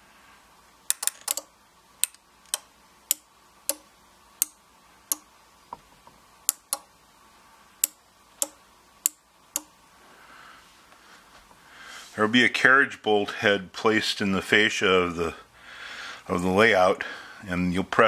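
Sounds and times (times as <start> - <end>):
relays clicking: 0.9 - 5.3.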